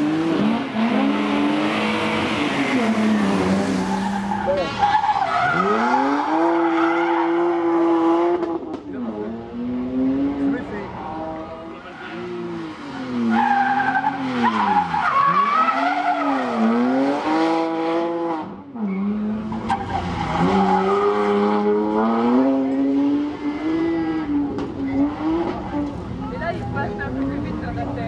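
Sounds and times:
rally car engine revving: 0.0s - 28.0s.

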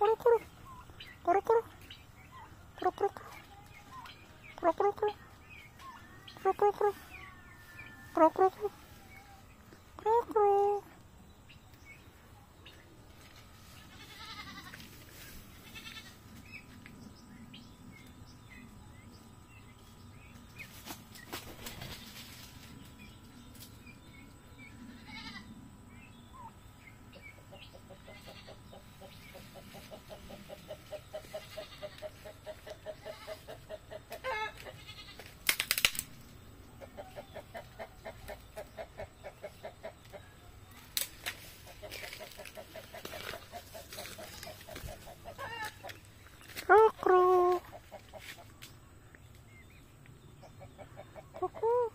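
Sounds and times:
turkeys peeping: 0.0s - 10.8s, 26.3s - 34.8s, 35.5s - 48.6s.

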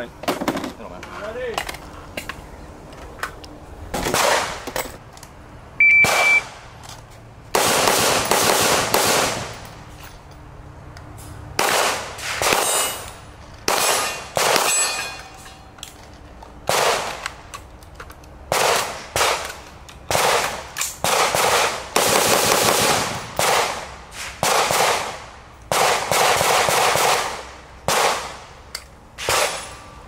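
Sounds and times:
short high beep: 5.8s - 6.4s
gunshots with echo: 6.0s - 6.4s.

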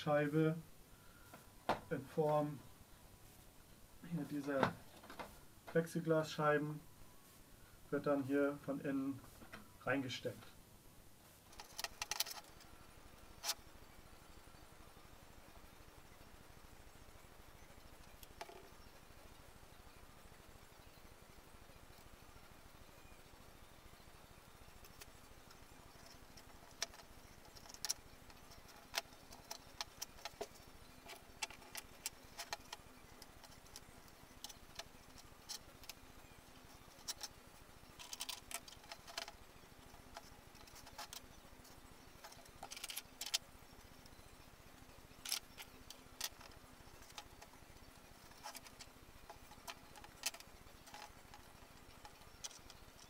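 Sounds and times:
faint steady hum: 0.0s - 53.0s
wooden parts clicking and tapping: 4.3s - 5.9s, 11.5s - 12.7s, 18.0s - 18.8s, 24.8s - 53.0s.

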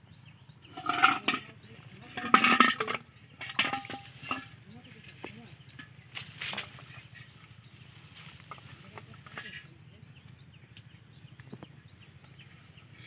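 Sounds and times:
plastic bottles and pot clattering: 0.7s - 7.4s, 8.2s - 9.7s.

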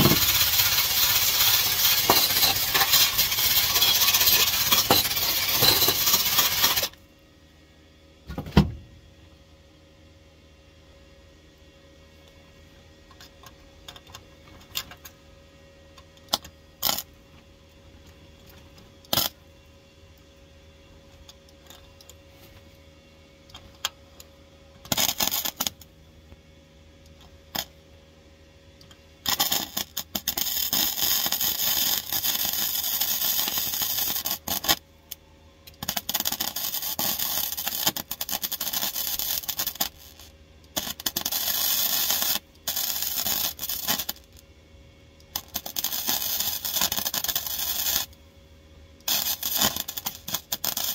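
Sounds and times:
welder crackling: 0.0s - 7.0s, 16.3s - 17.1s, 19.1s - 19.4s, 24.8s - 25.9s, 28.8s - 34.8s, 35.7s - 44.4s, 45.2s - 48.2s, 49.0s - 50.9s.

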